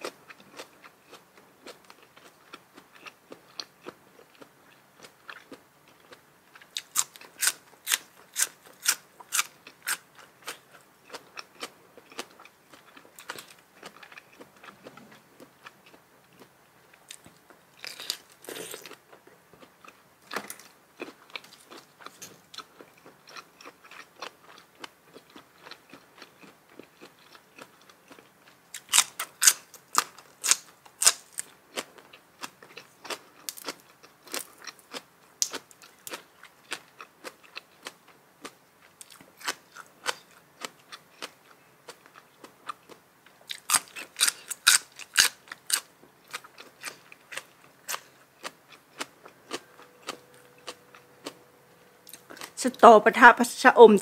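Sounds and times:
loud crisp crunching: 0:06.0 - 0:15.0, 0:17.1 - 0:19.0, 0:28.1 - 0:31.9, 0:43.5 - 0:51.4.

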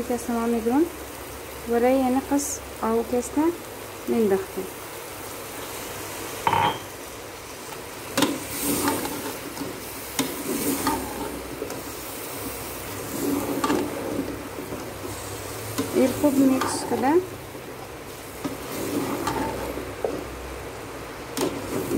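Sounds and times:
vegetables sizzling in a pot: 0:00.0 - 0:21.9
spoon knocking against pot: 0:06.5 - 0:06.9.

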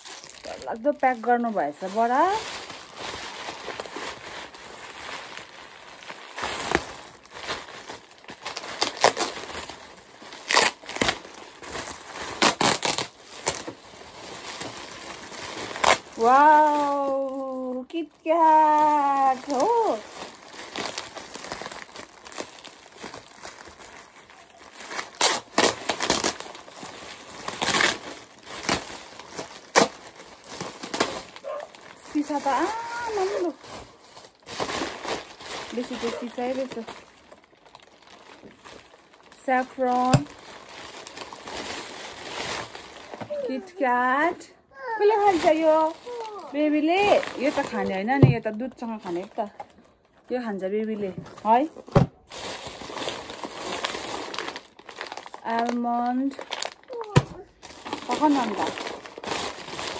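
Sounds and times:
plastic bags crinkling: 0:00.0 - 0:59.9.

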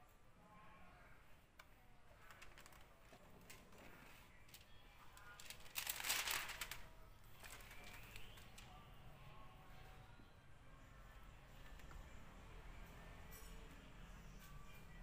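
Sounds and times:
plastic film crinkling: 0:02.1 - 0:08.7.

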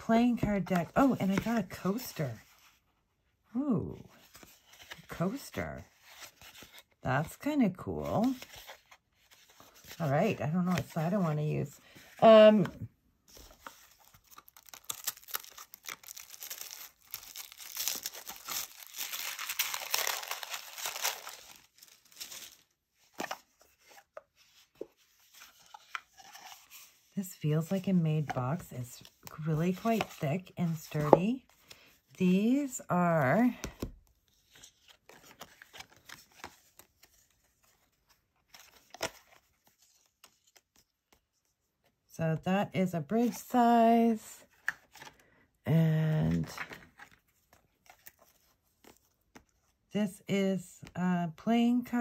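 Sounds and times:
playing cards clicking and rustling: 0:00.1 - 0:02.2, 0:12.5 - 0:27.0, 0:27.6 - 0:31.4, 0:33.4 - 0:37.5, 0:46.2 - 0:49.6
paper wrapping tearing and crinkling: 0:14.0 - 0:22.7.

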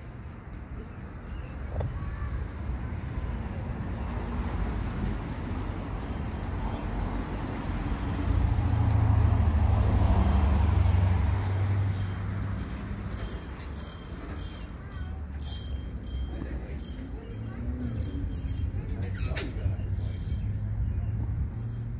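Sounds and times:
vehicle engine rumbling past: 0:02.6 - 0:21.9.

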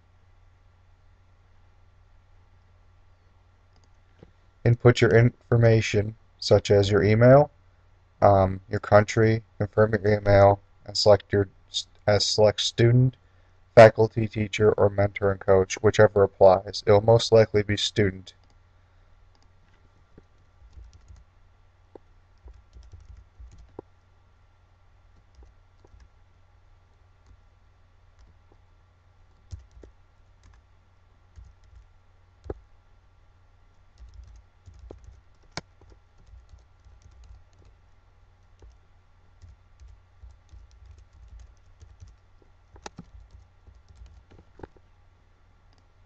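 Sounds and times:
steady low hum: 0:00.0 - 0:46.0
keyboard typing: 0:20.2 - 0:21.3, 0:22.0 - 0:23.9, 0:25.2 - 0:26.1, 0:28.2 - 0:28.6, 0:29.3 - 0:30.6, 0:31.3 - 0:32.6, 0:33.9 - 0:38.8, 0:39.4 - 0:44.8.

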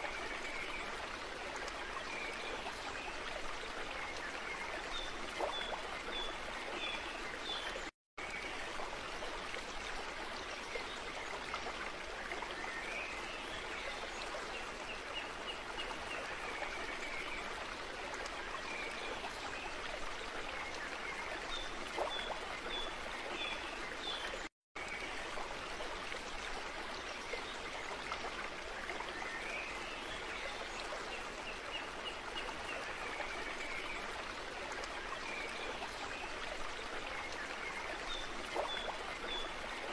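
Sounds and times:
stream flowing: 0:00.0 - 0:39.9.

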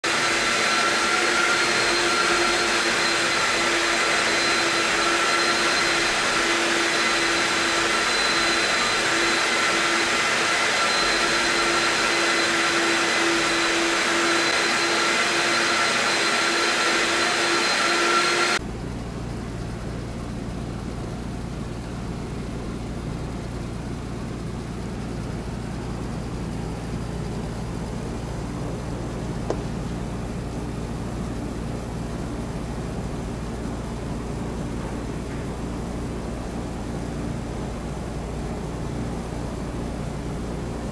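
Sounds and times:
air conditioner fan rushing: 0:00.0 - 0:40.9
air conditioner outdoor unit humming: 0:18.6 - 0:40.9.

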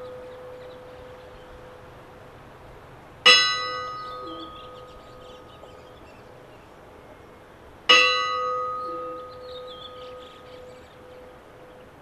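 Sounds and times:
church bell ringing: 0:00.0 - 0:01.9, 0:03.2 - 0:05.9, 0:07.9 - 0:11.7.

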